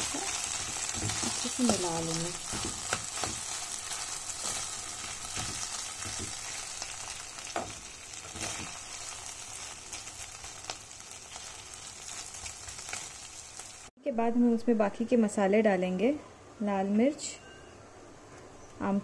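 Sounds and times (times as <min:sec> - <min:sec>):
potatoes sizzling in hot oil: 0:00.0 - 0:13.9.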